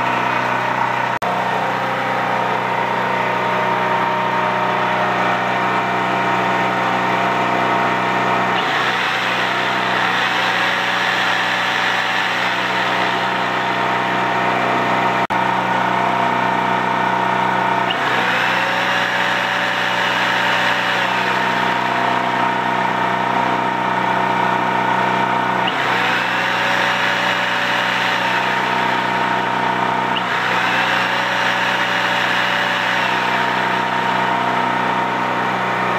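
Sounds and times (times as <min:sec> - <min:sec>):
generator engine running: 0:00.0 - 0:35.9
jigsaw motor whine: 0:08.5 - 0:13.9, 0:17.8 - 0:22.9, 0:25.4 - 0:35.9.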